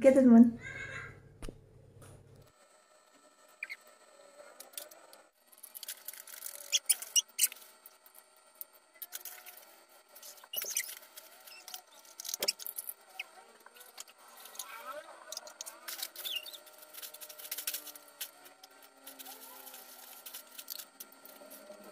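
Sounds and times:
plastic bags crinkling: 15.4 - 21.9.

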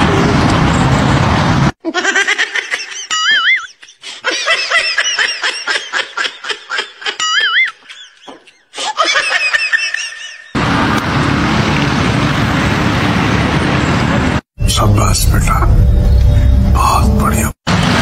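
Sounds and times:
laughing sound effect: 1.8 - 10.6.

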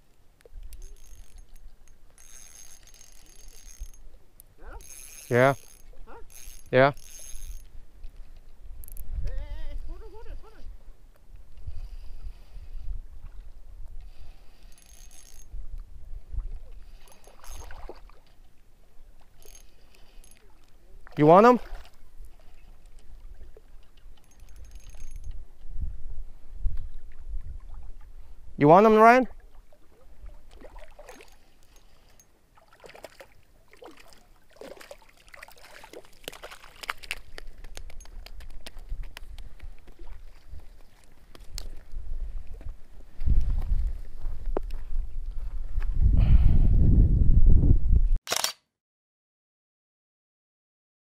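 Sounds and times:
fishing reel whirring: 0.6 - 7.8, 14.0 - 15.6, 16.8 - 17.9, 19.2 - 20.7, 24.0 - 25.4
wind rumble on microphone: 7.6 - 14.5, 15.4 - 17.0, 23.0 - 28.6, 37.4 - 48.2
fish splashing at water surface: 29.9 - 37.4
short clicks: 48.3 - 48.7.

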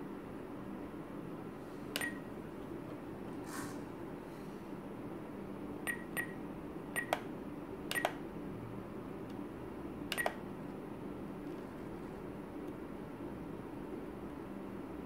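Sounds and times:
scroll wheel and button clicks: 2.0 - 2.2, 7.0 - 7.3, 7.9 - 8.2, 10.1 - 10.4
transmitter short beeps: 2.0 - 2.3, 5.9 - 6.4, 7.0 - 7.2.

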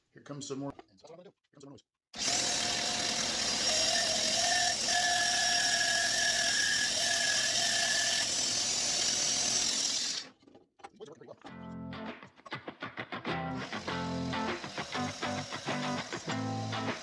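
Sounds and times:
bandsaw cutting wood: 2.2 - 10.3, 13.6 - 17.0.

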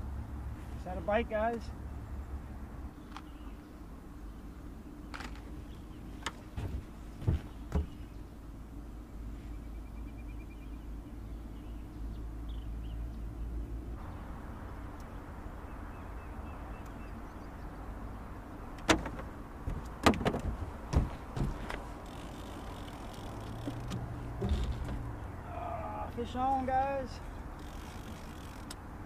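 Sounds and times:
knocks on aluminum boat: 6.6 - 8.0, 18.8 - 21.6.

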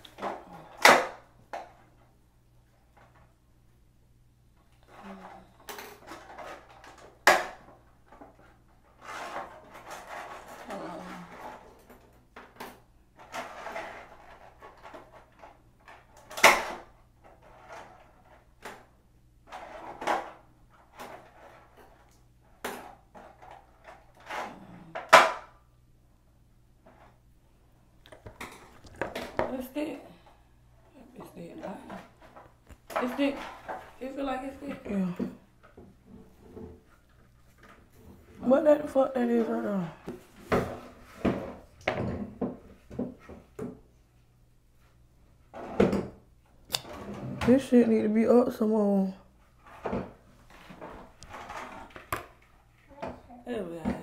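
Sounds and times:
objects handled on hard surface: 4.7 - 25.4, 28.1 - 44.0, 49.4 - 54.0.

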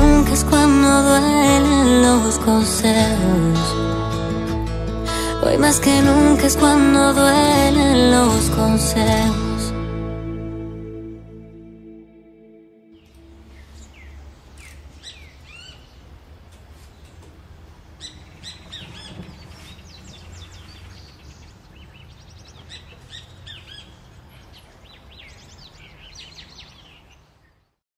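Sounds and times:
steady low rumble: 0.0 - 2.2
birds chirping: 13.0 - 27.8.

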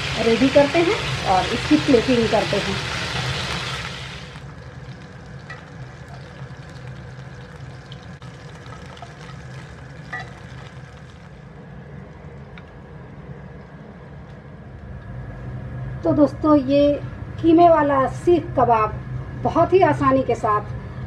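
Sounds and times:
meat sizzling in oil: 0.0 - 11.6
oil popping: 0.0 - 12.8
low steady hum: 0.0 - 21.0.

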